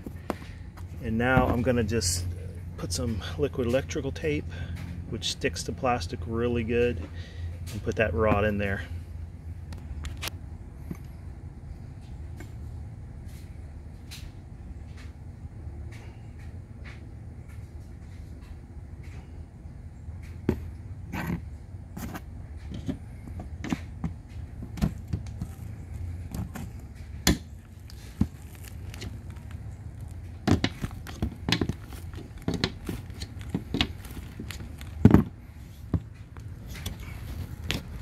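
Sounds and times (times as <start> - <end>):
low background rumble: 0.0 - 38.0
plastic and metal knocks: 30.4 - 34.0.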